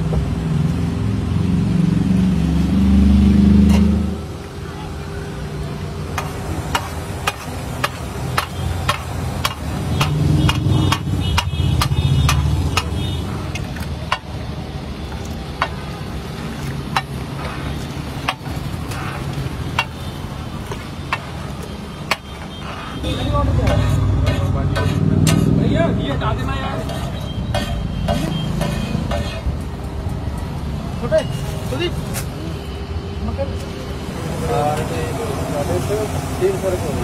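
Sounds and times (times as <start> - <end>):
low traffic rumble: 0.0 - 37.0
metal ladle scraping a griddle: 22.6 - 25.6, 26.6 - 29.5.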